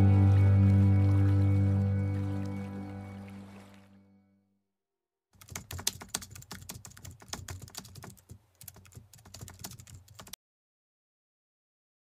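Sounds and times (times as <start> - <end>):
keyboard typing: 5.4 - 10.4.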